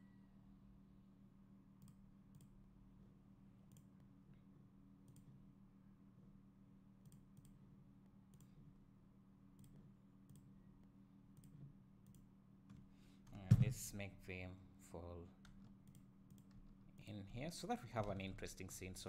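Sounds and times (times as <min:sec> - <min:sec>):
low steady hum: 0:00.0 - 0:19.0
faint computer mouse clicks: 0:05.1 - 0:05.3.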